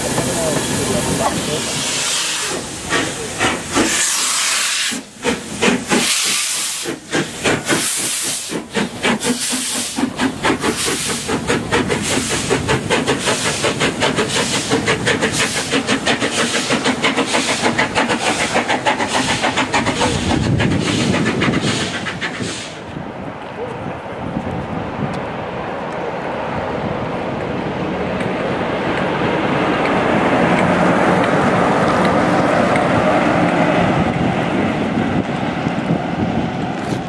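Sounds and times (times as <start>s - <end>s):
steam locomotive exhaust chuffs: 0.0s - 23.0s.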